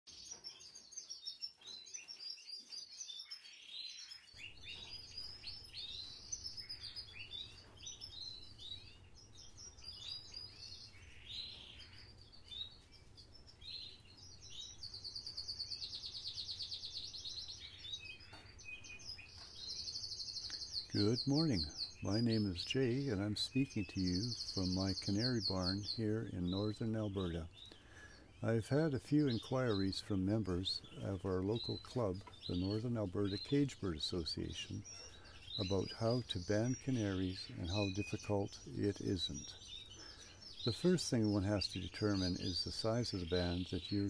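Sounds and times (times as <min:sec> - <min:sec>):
canaries singing: 0:00.1 - 0:44.0.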